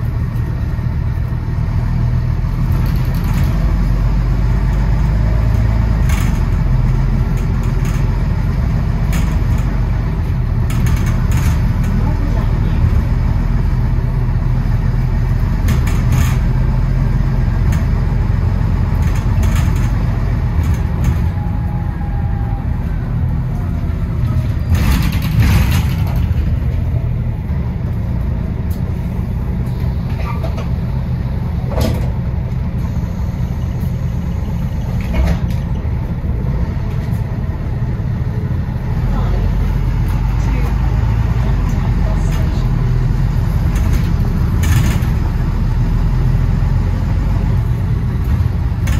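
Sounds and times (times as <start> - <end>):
bus engine rumble: 0.0 - 48.9
sharp knocks and rattles: 24.6 - 27.0.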